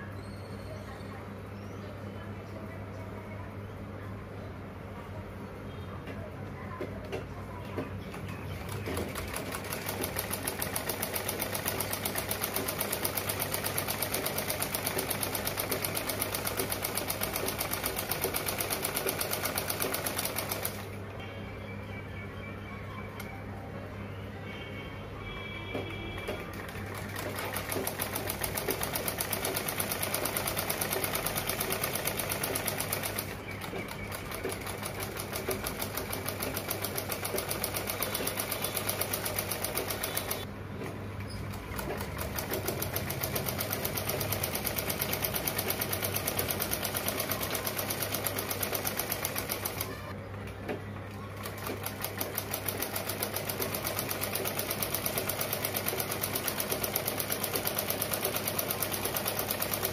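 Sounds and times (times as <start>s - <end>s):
sewing machine stitching: 8.6s - 20.9s, 26.1s - 40.5s, 41.3s - 50.0s, 51.4s - 59.9s.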